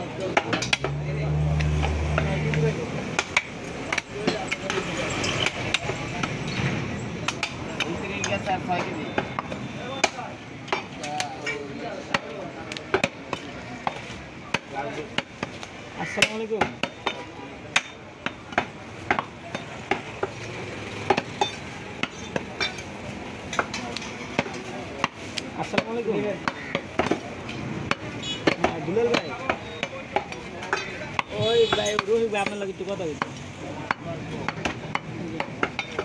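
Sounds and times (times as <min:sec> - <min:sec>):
cleaver chopping meat on wooden block: 0:23.6 - 0:27.2, 0:27.8 - 0:32.6, 0:33.2 - 0:36.0.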